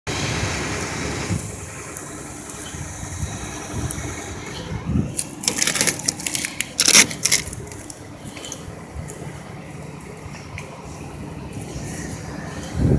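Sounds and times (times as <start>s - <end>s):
wind rumbling on microphone: 0.1s - 12.9s
sharp crackling rustles: 5.1s - 9.2s.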